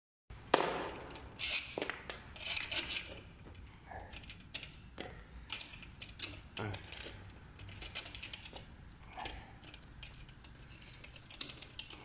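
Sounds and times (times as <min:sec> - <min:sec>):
small parts clicking on metal tube: 0:01.0 - 0:12.0.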